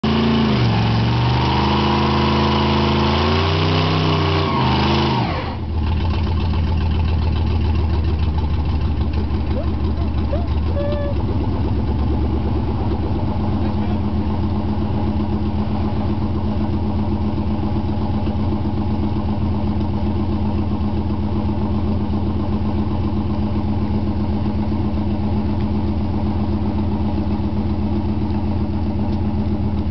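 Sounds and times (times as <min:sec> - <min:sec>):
car engine revving loud: 0:00.0 - 0:05.6.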